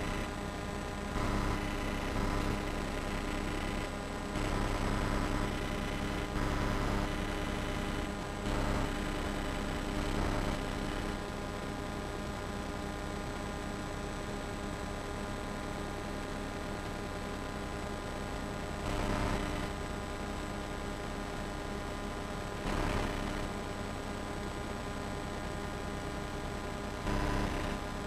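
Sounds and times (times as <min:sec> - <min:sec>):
electrical hum: 0:00.0 - 0:11.6, 0:26.9 - 0:28.0.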